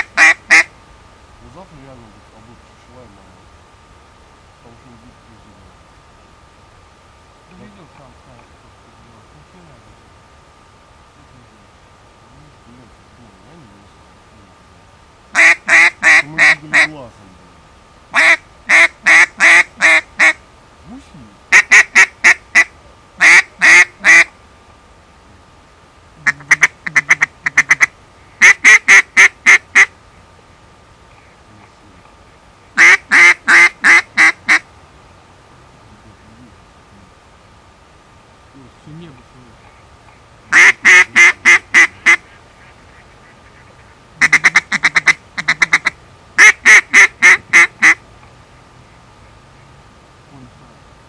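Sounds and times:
duck call quacking: 0.0s - 0.7s, 15.4s - 16.9s, 18.1s - 20.4s, 21.5s - 24.3s, 26.2s - 29.9s, 32.8s - 34.6s, 40.5s - 48.0s.

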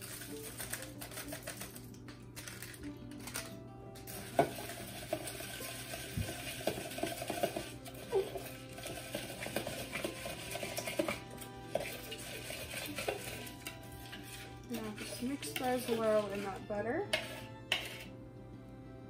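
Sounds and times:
spatula scraping glass bowl: 4.4s - 18.2s.

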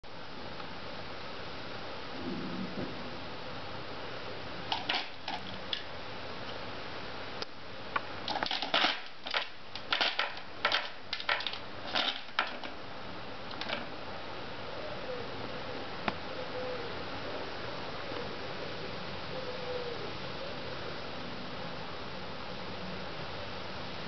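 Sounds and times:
background hiss: 0.0s - 24.0s
plastic cat toy ball rattling: 8.3s - 12.8s.

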